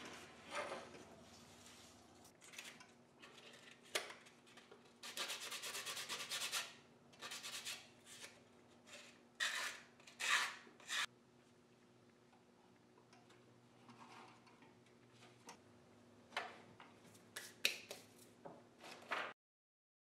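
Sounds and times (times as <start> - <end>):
hand sanding wood: 5.1 - 7.8.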